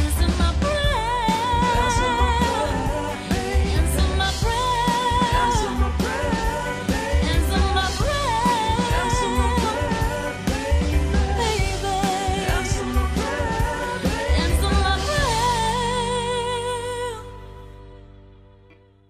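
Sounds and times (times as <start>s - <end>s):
steady bass beat: 0.0s - 16.3s.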